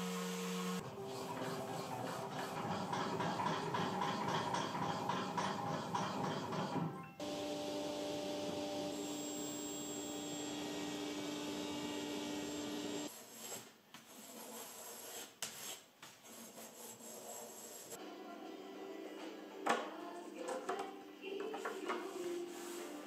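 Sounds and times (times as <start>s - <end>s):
table saw humming: 0.0s - 13.1s.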